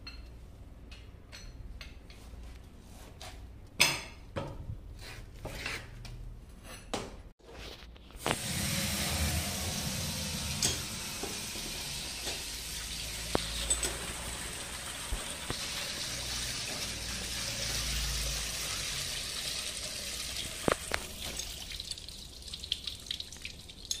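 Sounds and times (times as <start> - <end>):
water dripping: 8.3 - 24.0
water splashing onto concrete: 12.4 - 24.0.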